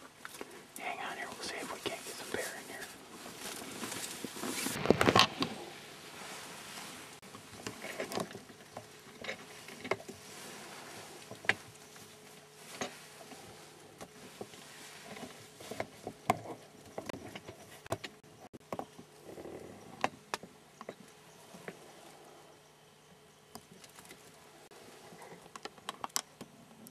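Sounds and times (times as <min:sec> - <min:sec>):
faint hiss: 0:00.4 - 0:07.2.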